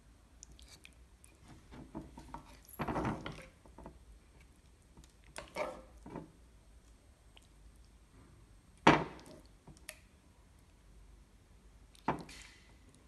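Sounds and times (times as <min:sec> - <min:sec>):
spoon scraping a plate: 0:05.4 - 0:05.9.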